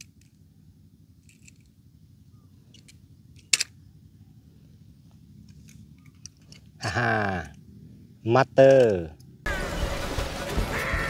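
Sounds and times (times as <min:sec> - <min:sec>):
metal toy cars clicking: 0:01.2 - 0:01.7, 0:02.7 - 0:03.7, 0:05.5 - 0:06.7.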